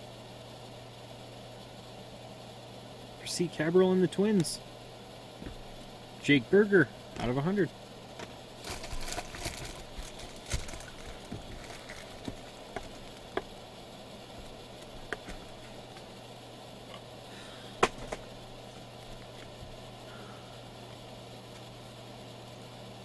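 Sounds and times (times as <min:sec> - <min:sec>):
steady low hum: 0:00.0 - 0:23.0
rustling of card packs: 0:08.2 - 0:13.6.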